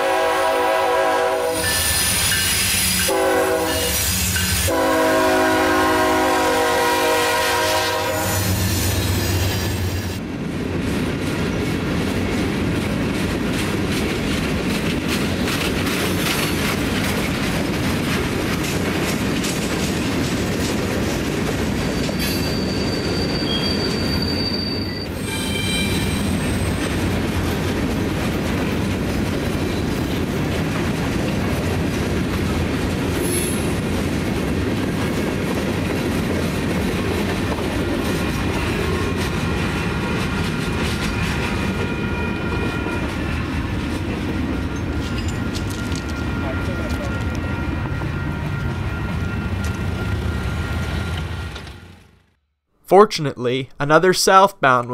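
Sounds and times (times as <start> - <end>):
train wheels rumbling on rails: 0.0 - 52.4
high wheel squeal: 1.6 - 3.1, 21.8 - 26.9.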